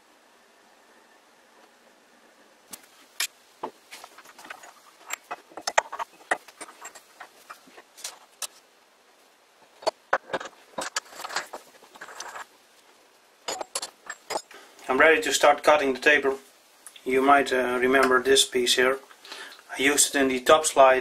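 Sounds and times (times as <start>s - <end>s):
metallic clicks and clinks: 13.5s - 14.6s.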